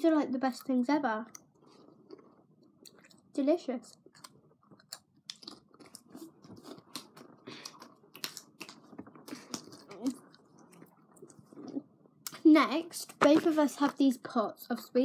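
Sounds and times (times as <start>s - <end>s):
crisps crunching and chewing: 0.5s - 12.4s.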